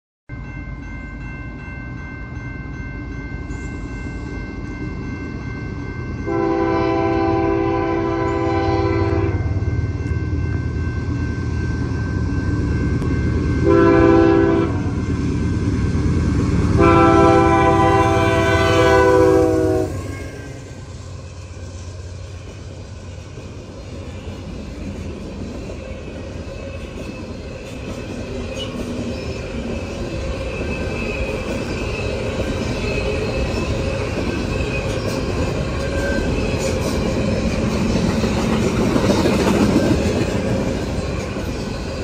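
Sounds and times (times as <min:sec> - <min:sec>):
train rumbling: 0:00.3 - 0:42.0
locomotive horn blasts: 0:06.3 - 0:09.6, 0:13.6 - 0:14.9, 0:16.8 - 0:20.6.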